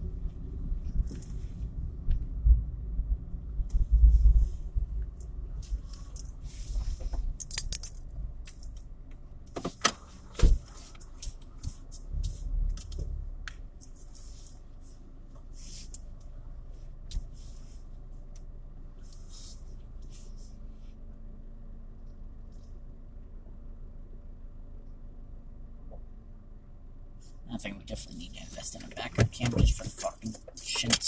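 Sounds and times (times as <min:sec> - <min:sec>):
car rolling rumble: 0:00.0 - 0:31.0
keys jangling: 0:07.4 - 0:08.8, 0:13.8 - 0:14.6.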